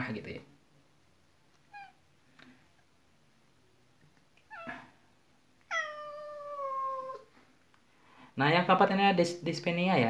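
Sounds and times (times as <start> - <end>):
cat meowing: 1.7 - 2.0, 4.4 - 4.9, 5.6 - 7.3.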